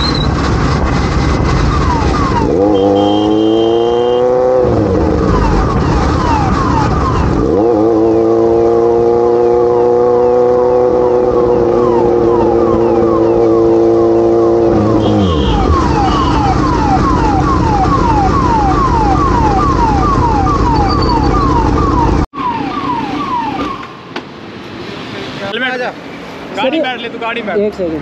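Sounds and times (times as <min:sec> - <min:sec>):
motorcycle engine: 0:00.0 - 0:22.2
police siren wailing: 0:01.5 - 0:08.3, 0:10.4 - 0:24.1.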